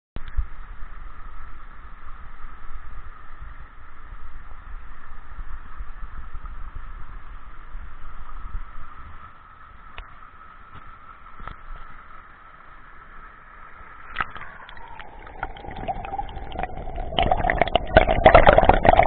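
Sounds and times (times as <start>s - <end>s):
underwater stream rushing: 10.9s - 19.0s.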